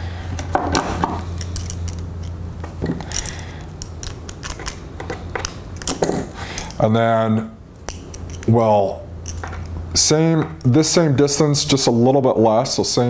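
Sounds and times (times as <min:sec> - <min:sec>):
steady low hum: 0:00.0 - 0:13.0
pliers clicking and scraping on wire: 0:01.4 - 0:06.8, 0:07.8 - 0:09.8.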